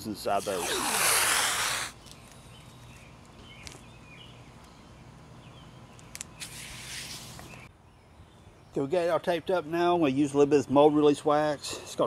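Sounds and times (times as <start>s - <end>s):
masking tape rustling: 0.3s - 3.8s, 6.0s - 7.7s.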